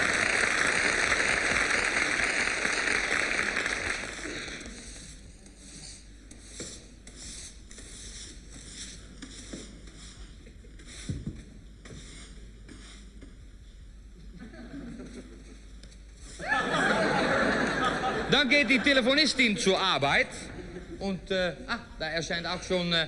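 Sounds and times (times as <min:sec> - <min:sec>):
push broom sweeping cobblestones: 0:04.8 - 0:11.3.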